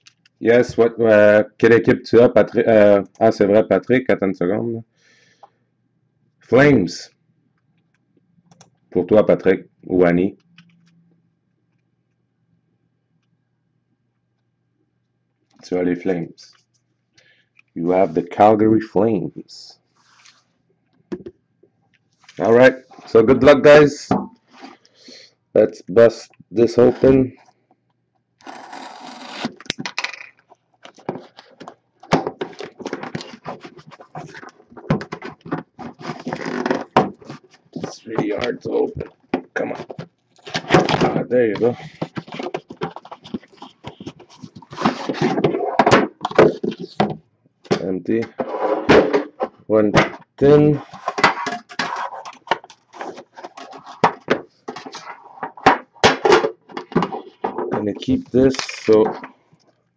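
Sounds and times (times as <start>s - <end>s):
cardboard rustling and scraping: 30.9s - 39.0s, 39.6s - 47.2s, 48.3s - 49.6s, 50.6s - 59.3s.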